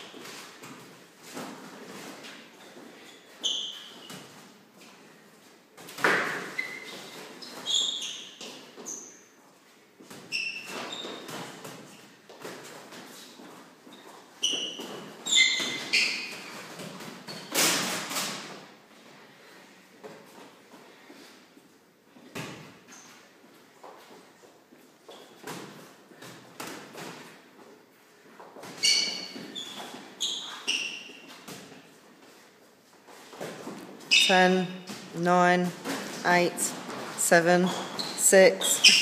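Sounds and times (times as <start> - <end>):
trainers squeaking on floor: 2.0 - 4.4, 6.0 - 9.4, 10.2 - 12.1, 13.1 - 17.8, 25.0 - 25.5, 28.6 - 31.8, 34.0 - 34.9, 36.1 - 39.0.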